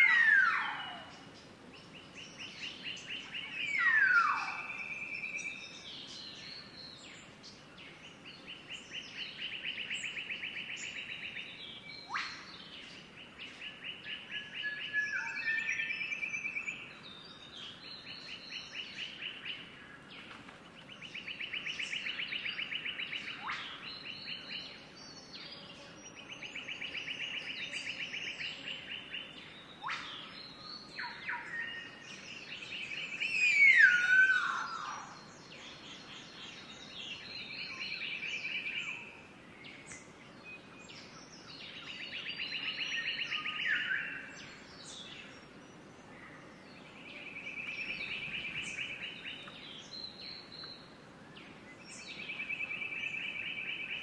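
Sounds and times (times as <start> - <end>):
descending bird whistles: 3.6 - 5.6, 33.0 - 35.2.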